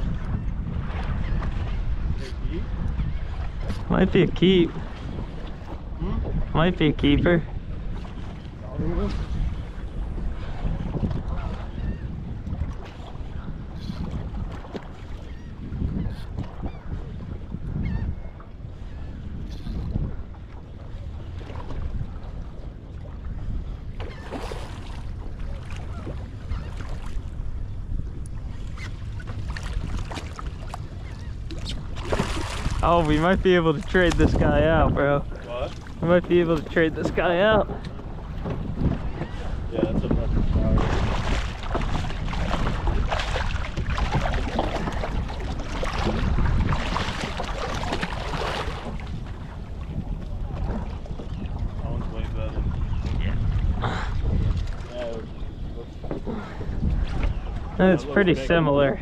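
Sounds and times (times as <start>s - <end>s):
water lapping against boat hull: 0.0s - 59.0s
wind buffeting microphone: 0.0s - 59.0s
fish thrashing and splashing: 31.6s - 33.1s, 40.8s - 49.0s.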